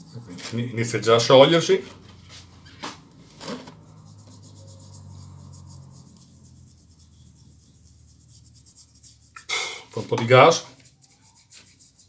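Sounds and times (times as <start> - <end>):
brush scrubbing metal: 3.7 - 12.0
low hum: 3.8 - 9.5.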